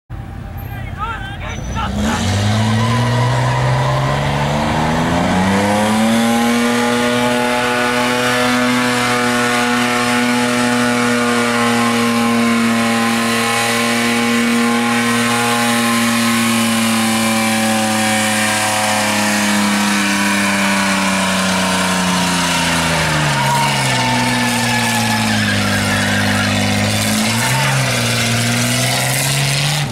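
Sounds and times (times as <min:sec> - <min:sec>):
tyres spinning on track: 0:01.0 - 0:29.9
car engine revving: 0:01.6 - 0:29.9.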